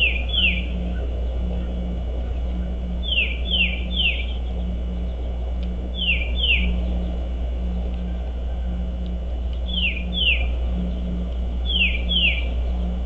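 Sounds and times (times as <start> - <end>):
songbird whistled calls: 0.0 - 1.0, 3.0 - 5.2, 5.9 - 6.9, 9.6 - 10.5, 11.6 - 12.6
steady low rumble: 0.0 - 13.0.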